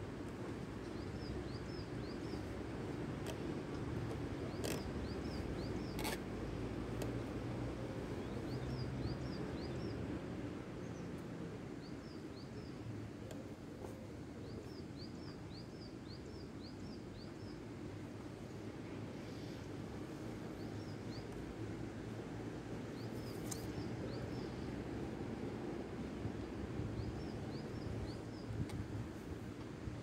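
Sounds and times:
small birds chirping: 0.8 - 6.2, 22.8 - 24.7.

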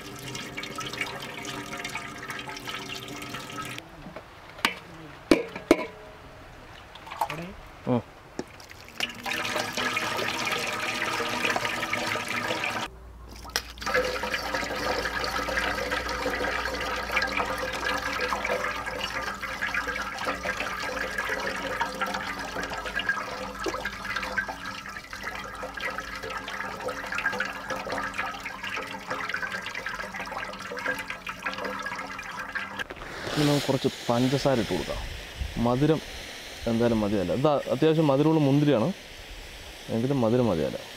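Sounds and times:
juice streaming and splashing into pot: 0.0 - 3.8, 8.4 - 36.0.

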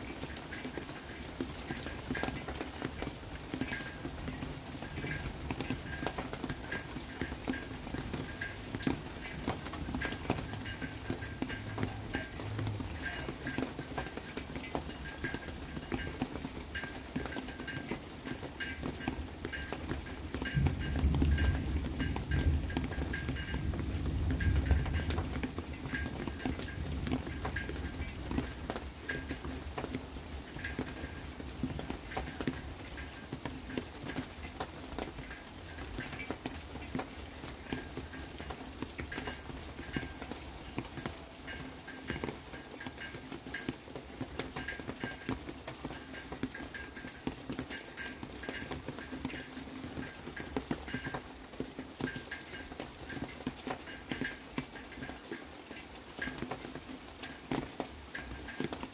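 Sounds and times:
rain dripping and pattering: 0.0 - 58.9
thunder rumbling: 20.5 - 26.4.

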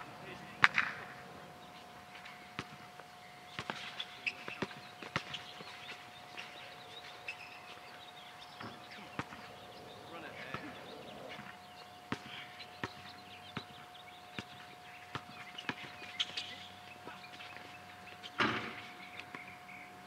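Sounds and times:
basketball bouncing on court: 3.5 - 5.8, 9.1 - 9.5, 11.5 - 16.5.

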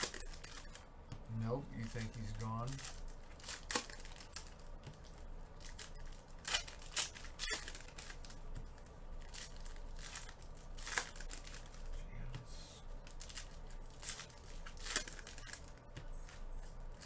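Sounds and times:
rustling of wrappers and cards: 0.0 - 17.0
foil packs ripping: 1.4 - 5.0, 5.6 - 8.4, 9.2 - 11.8, 13.0 - 17.0.

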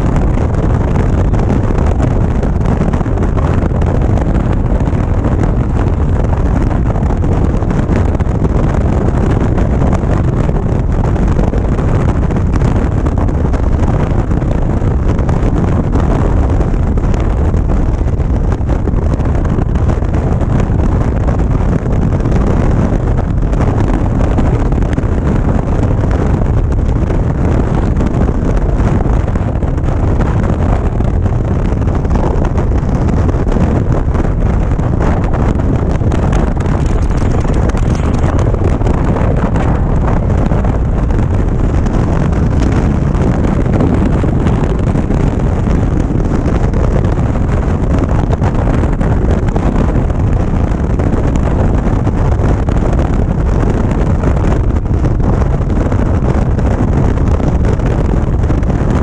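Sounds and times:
wind buffeting microphone: 0.0 - 59.0
motorcycle engine running: 27.8 - 50.4.

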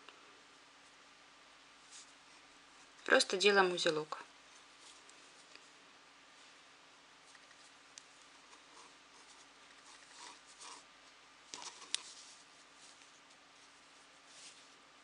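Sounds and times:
yarn rustling and scratching: 1.8 - 3.0, 7.2 - 10.9, 11.5 - 15.0.

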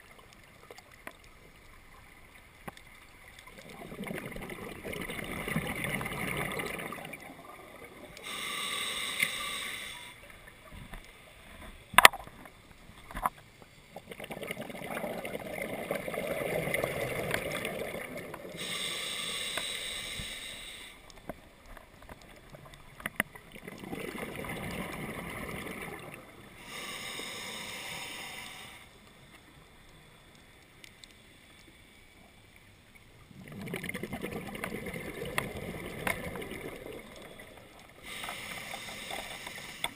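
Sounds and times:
scuba regulator breathing: 8.1 - 10.3, 18.4 - 21.2, 25.1 - 29.1, 36.7 - 39.9.

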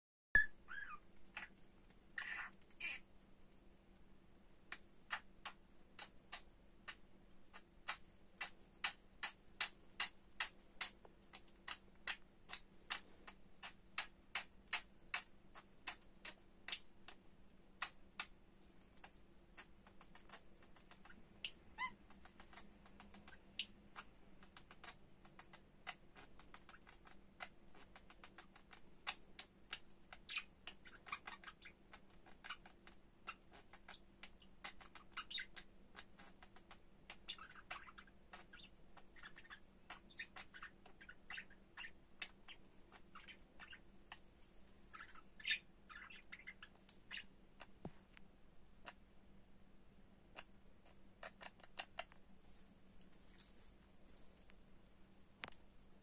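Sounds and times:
budgerigar chirps: 0.4 - 1.6, 2.2 - 3.1, 25.8 - 43.8, 44.9 - 47.3
budgerigar clicking: 4.7 - 17.2.

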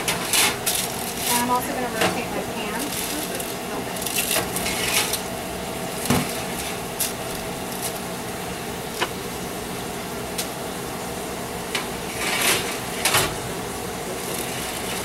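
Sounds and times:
baking sheets scraping on racks: 0.0 - 5.3, 6.0 - 8.1, 11.8 - 13.4, 14.2 - 15.0
oven fan humming: 0.0 - 15.0.

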